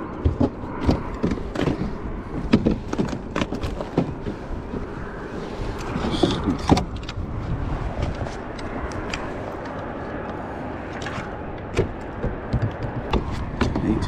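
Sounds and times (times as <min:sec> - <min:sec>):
fishing gear knocking on plastic: 0:11.7 - 0:14.0.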